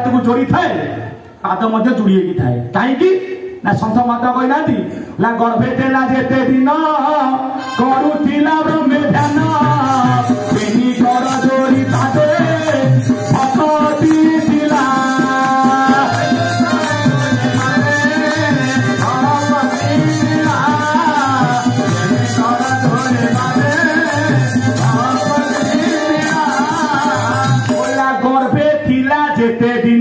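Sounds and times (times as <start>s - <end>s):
person singing: 7.3s - 30.0s
keyboard accompaniment: 7.7s - 29.0s
steady drum rhythm: 8.6s - 28.7s.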